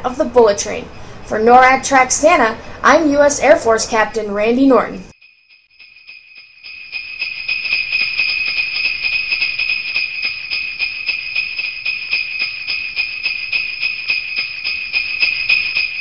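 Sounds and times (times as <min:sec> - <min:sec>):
sleigh bells jingling: 0:05.1 - 0:16.0.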